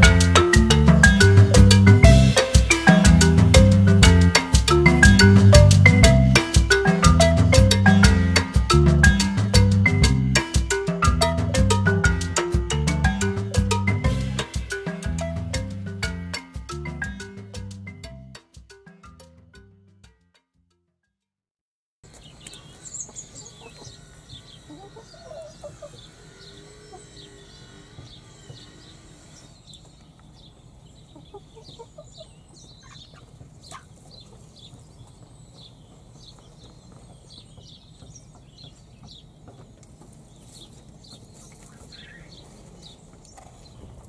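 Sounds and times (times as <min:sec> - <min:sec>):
hens clucking softly: 0:24.6 - 0:27.2, 0:31.1 - 0:34.8.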